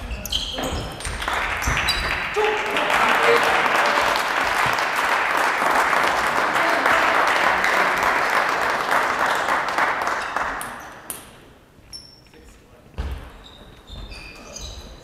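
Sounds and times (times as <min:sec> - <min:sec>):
spectators applauding: 0:00.8 - 0:10.9.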